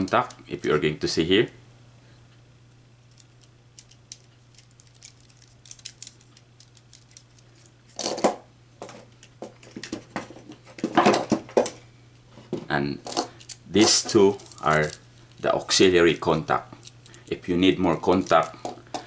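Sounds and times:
steady low hum: 0.0 - 19.0
plastic parts clicking together: 3.1 - 7.7, 18.1 - 19.0.

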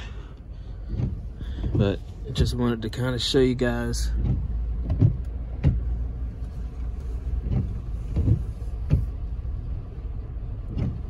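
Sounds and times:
road and engine rumble: 0.0 - 11.0
short thumps: 0.8 - 2.6, 4.0 - 9.3.

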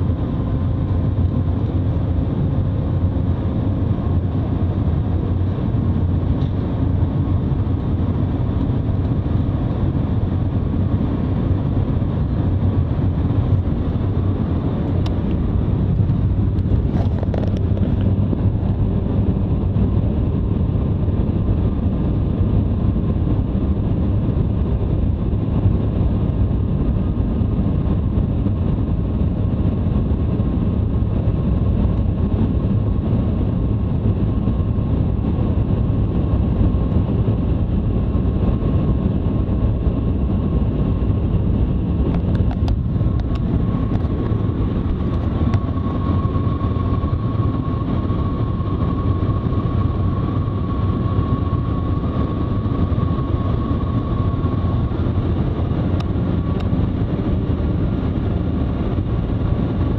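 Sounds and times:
faint whine: 25.2 - 59.9.

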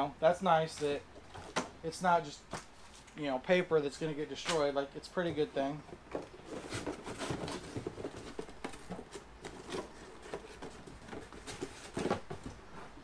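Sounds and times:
hands rummaging in cardboard box: 5.3 - 13.0.

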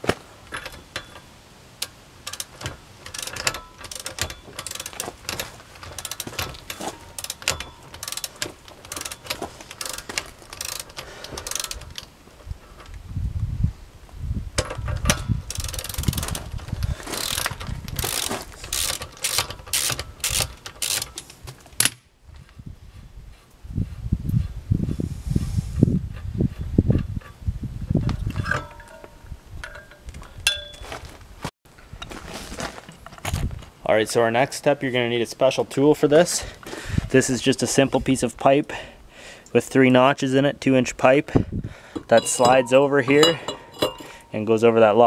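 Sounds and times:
ratchet wrench clicking: 0.6 - 12.1, 14.6 - 21.4.

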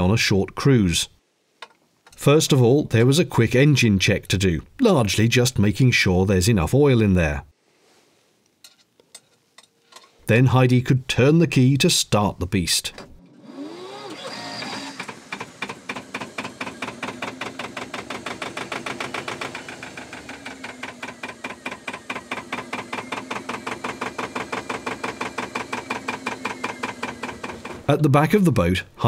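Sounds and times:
engine starter cranking whine: 13.0 - 28.0
engine chugging: 13.8 - 28.0.

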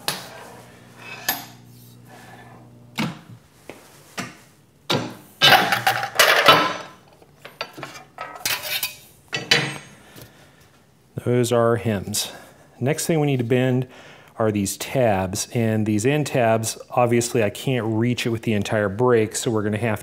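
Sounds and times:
sheet-metal brake humming: 0.0 - 3.2.

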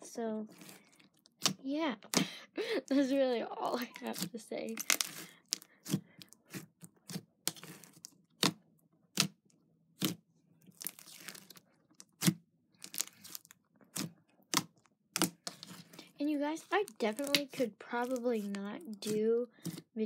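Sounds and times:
slime popping and crackling: 3.7 - 9.4, 10.0 - 19.8.

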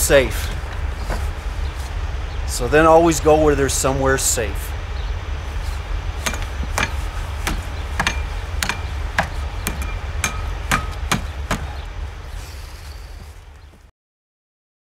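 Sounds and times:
steady low rumble: 0.0 - 13.9
hammer striking metal: 6.2 - 11.8.

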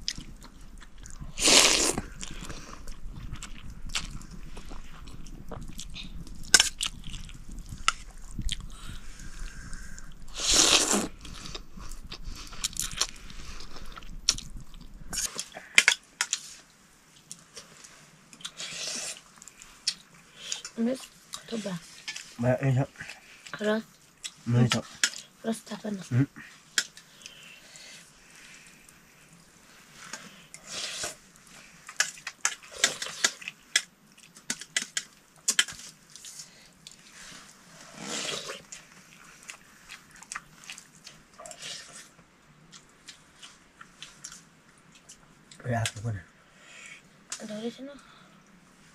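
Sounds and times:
slurping and chewing noodles: 0.0 - 16.5, 18.4 - 20.7, 30.0 - 45.2
slurping soup: 1.3 - 2.9, 9.5 - 13.8, 37.8 - 38.8.

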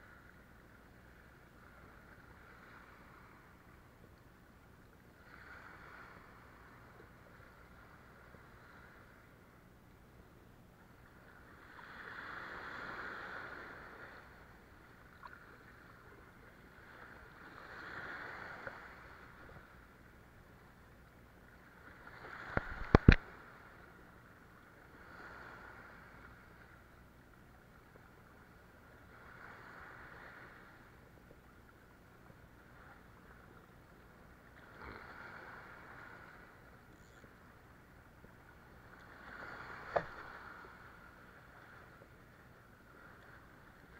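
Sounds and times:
waves washing against concrete: 22.3 - 23.3, 39.2 - 40.7.

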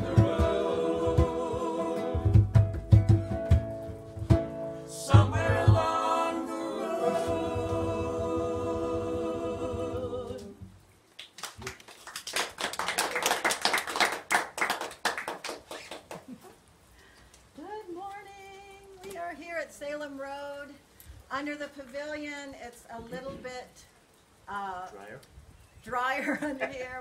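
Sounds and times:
drum hits: 0.0 - 6.2
acoustic band playing: 0.0 - 10.8
audience clapping: 11.2 - 16.4.

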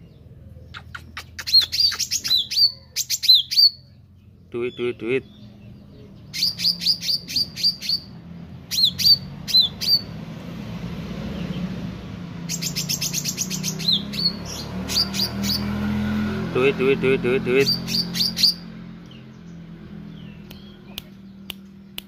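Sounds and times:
bird chirping and whistling: 0.7 - 3.8, 6.2 - 10.1, 12.4 - 15.8, 17.6 - 18.7.

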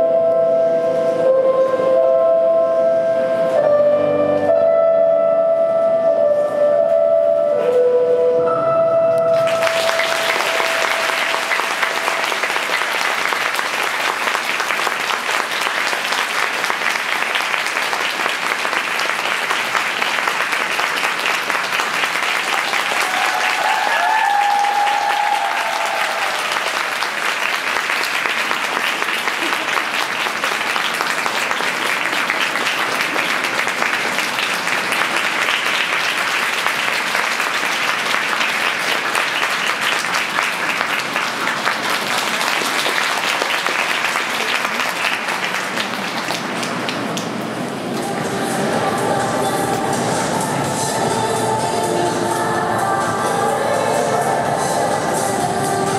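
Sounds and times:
slow instrumental music: 0.0 - 12.2
audience applause: 9.3 - 50.9
audience cheer: 22.3 - 27.6.

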